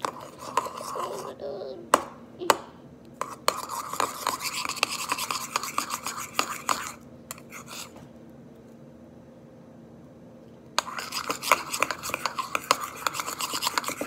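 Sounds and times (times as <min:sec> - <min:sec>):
spoon scraping a bowl: 0:00.0 - 0:01.4, 0:03.2 - 0:07.9, 0:10.8 - 0:14.0.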